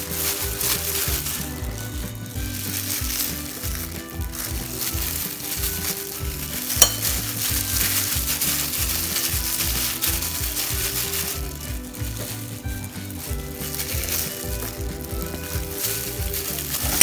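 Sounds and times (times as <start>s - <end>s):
background music with bass: 0.0s - 17.0s
plastic gloves crinkling: 0.0s - 17.0s
raw meat squishing: 0.0s - 17.0s.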